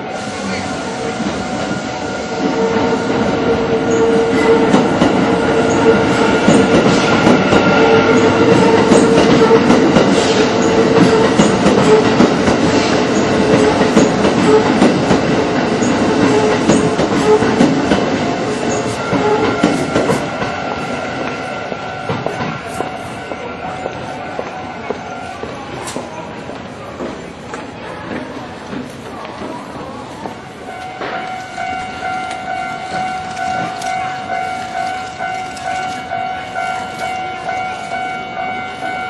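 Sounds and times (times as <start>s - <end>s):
crossing warning bell ringing: 0.0s - 12.4s, 15.7s - 25.7s, 30.4s - 39.0s
train wheels clattering: 1.1s - 39.0s.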